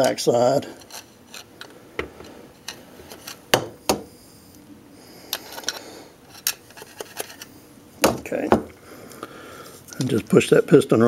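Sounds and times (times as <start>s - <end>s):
screwdriver and metal parts clicking: 5.3s - 7.5s.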